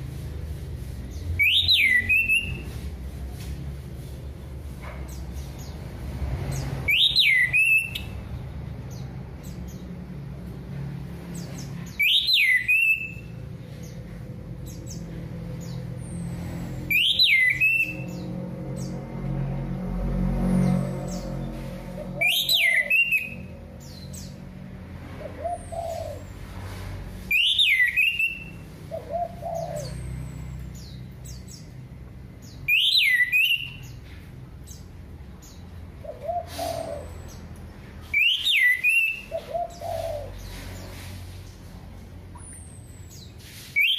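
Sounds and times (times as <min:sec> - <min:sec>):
high bird chirps: 0:01.1 - 0:02.8, 0:06.5 - 0:08.2, 0:11.4 - 0:14.0, 0:14.7 - 0:18.9, 0:22.0 - 0:24.4, 0:27.3 - 0:31.8, 0:32.4 - 0:41.0, 0:42.4 - 0:43.9
thrush whistled song: 0:01.4 - 0:02.8, 0:06.9 - 0:08.2, 0:11.9 - 0:13.3, 0:16.9 - 0:18.2, 0:22.2 - 0:23.5, 0:27.3 - 0:28.6, 0:32.6 - 0:34.0, 0:38.1 - 0:40.0, 0:43.7 - 0:43.9
lower bird calls: 0:35.4 - 0:37.5, 0:38.1 - 0:41.2.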